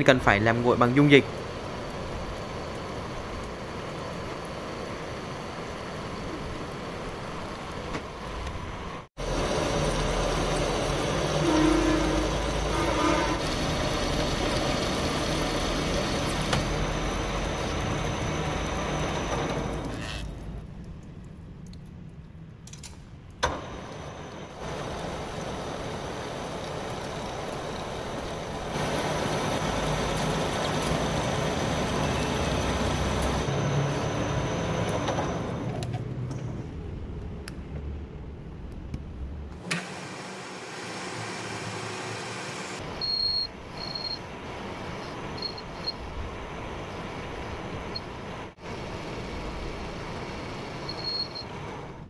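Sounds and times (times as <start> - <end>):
metal lathe cutting with coolant spray: 9.2 - 20.2, 23.4 - 35.7, 39.6 - 52.0.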